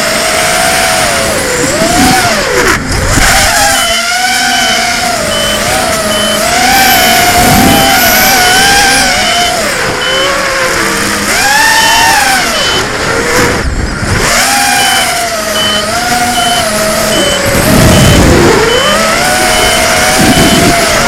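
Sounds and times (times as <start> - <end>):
drone motors whining: 0.0 - 21.0
wind rush: 1.2 - 3.8, 5.2 - 10.0, 17.0 - 19.4.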